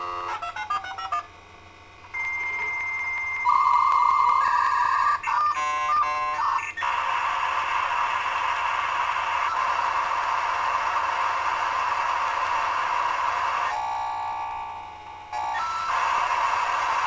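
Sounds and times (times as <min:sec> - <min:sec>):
electronic beeping tone: 0:02.1 - 0:04.2.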